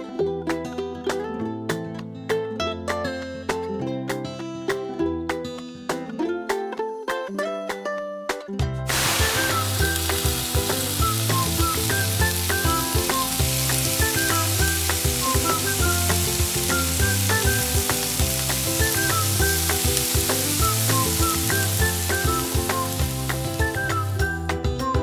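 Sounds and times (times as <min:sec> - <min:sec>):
background music with bass: 0:08.6 - 0:25.0
tofu sizzling in hot oil: 0:08.9 - 0:24.4.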